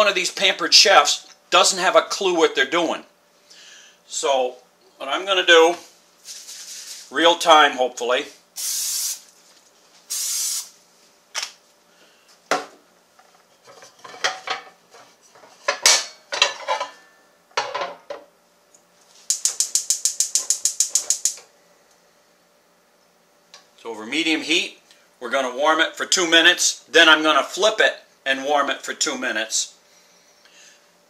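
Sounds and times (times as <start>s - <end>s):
aerosol spray hissing: 8.6s - 9.3s, 10.1s - 10.8s
metal clanks and knocks: 13.6s - 18.2s
gas igniter clicking rapidly: 19.3s - 21.4s.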